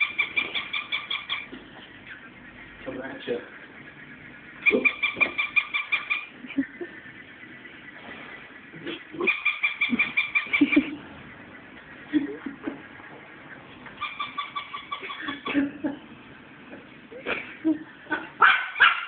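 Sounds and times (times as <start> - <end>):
toy squeaking: 0.0 - 1.5, 4.6 - 6.3, 9.2 - 10.8, 14.0 - 15.5.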